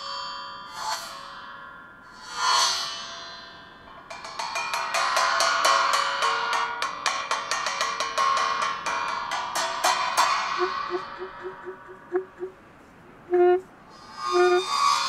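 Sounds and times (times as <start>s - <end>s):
soft low saxophone notes: 10.6s - 14.7s.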